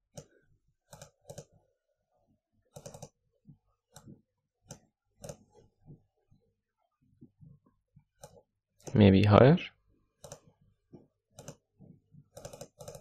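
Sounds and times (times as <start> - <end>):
computer mouse clicking: 0.1 - 1.6, 2.7 - 3.2, 3.9 - 5.6, 8.1 - 9.0, 10.2 - 10.6, 11.3 - 13.0.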